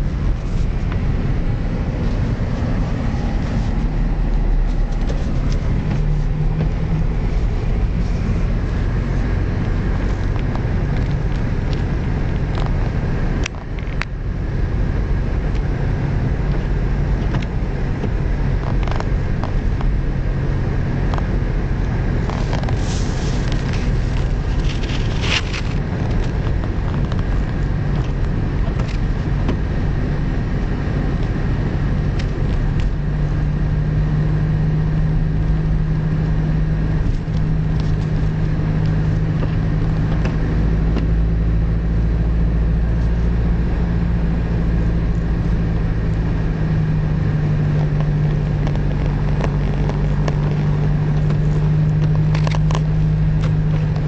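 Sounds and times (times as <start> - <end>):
car engine hum: 0.0 - 54.0
road noise: 0.0 - 54.0.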